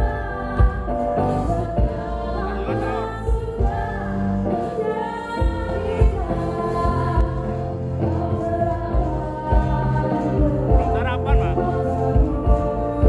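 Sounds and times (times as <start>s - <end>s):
person singing: 8.1s - 13.0s.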